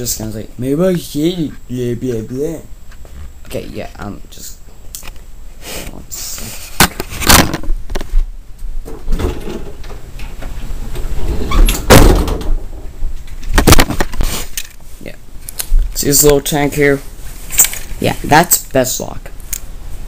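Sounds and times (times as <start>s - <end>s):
loud bumps on microphone: 13.6s - 14.2s.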